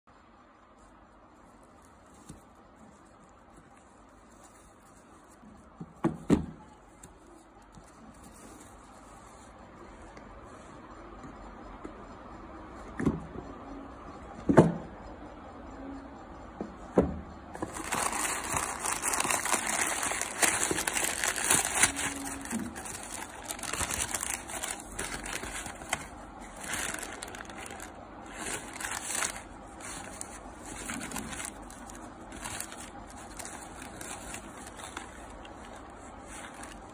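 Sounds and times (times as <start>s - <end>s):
tissue paper rustling: 0.8s - 5.8s, 6.9s - 9.6s, 17.6s - 36.9s.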